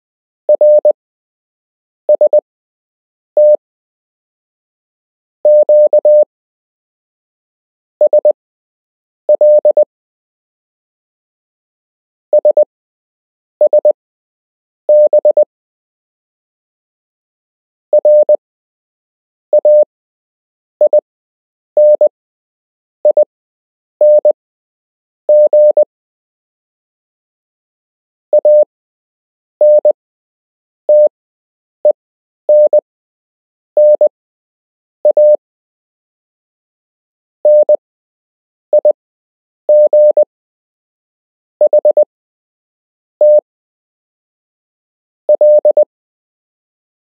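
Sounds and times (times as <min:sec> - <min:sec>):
morse code beeps: 0:00.6 - 0:01.0, 0:03.4 - 0:03.6, 0:05.5 - 0:06.3, 0:09.4 - 0:09.9, 0:14.9 - 0:15.5, 0:18.0 - 0:18.4, 0:19.6 - 0:19.9, 0:21.8 - 0:22.1, 0:24.0 - 0:24.4, 0:25.3 - 0:25.9, 0:28.4 - 0:28.7, 0:29.6 - 0:30.0, 0:30.9 - 0:31.1, 0:31.8 - 0:32.9, 0:33.8 - 0:34.1, 0:35.1 - 0:35.4, 0:37.5 - 0:37.8, 0:39.7 - 0:40.3, 0:41.6 - 0:42.1, 0:43.2 - 0:43.5, 0:45.3 - 0:45.9.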